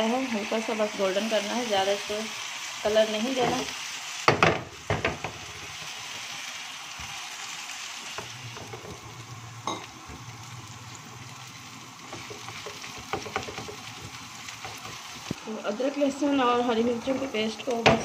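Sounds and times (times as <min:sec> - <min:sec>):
onions sizzling in oil: 0:00.0 - 0:18.0
spatula knocking against pan: 0:12.1 - 0:15.1.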